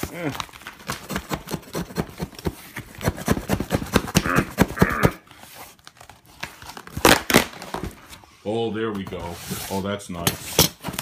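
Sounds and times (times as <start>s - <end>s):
cardboard box cut and ripped: 0.0s - 5.2s, 6.8s - 7.6s.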